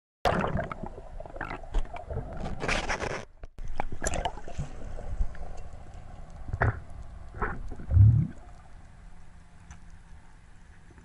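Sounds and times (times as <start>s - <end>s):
bubbles rushing: 0.3s - 2.4s, 3.8s - 5.3s, 7.4s - 8.5s.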